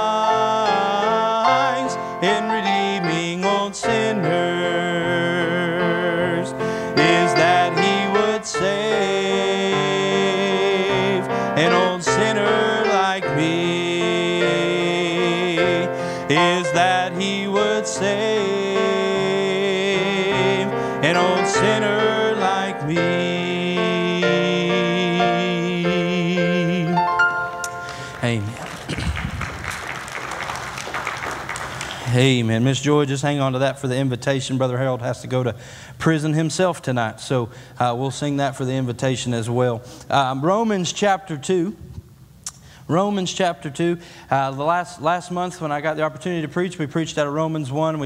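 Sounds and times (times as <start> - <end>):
man singing gospel: 0.0 - 28.6
piano accompaniment: 0.0 - 32.2.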